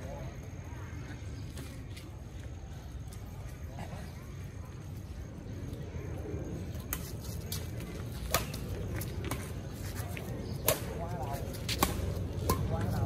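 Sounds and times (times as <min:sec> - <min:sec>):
rackets hitting shuttlecock: 0:08.2 - 0:09.6, 0:10.6 - 0:13.0.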